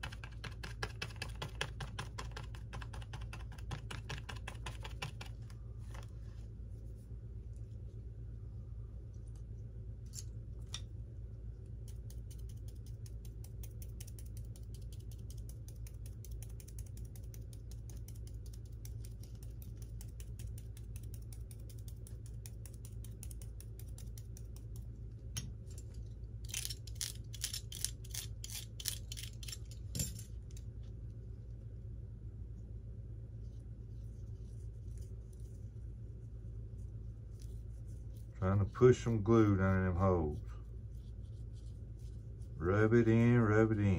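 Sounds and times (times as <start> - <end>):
rapid mechanical clicking: 0.0 - 5.4, 11.8 - 24.9
steady low hum: 0.0 - 43.9.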